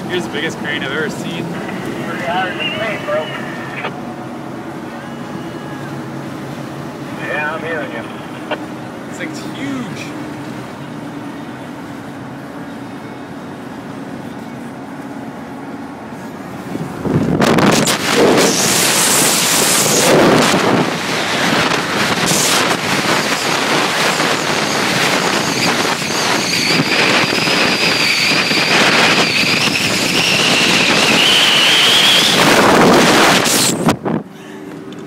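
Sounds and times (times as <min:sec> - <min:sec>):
truck road noise: 0:00.0 - 0:35.0
thin high whine rising: 0:00.3 - 0:10.9, 0:17.2 - 0:33.9
wind buffeting microphone: 0:16.6 - 0:34.3.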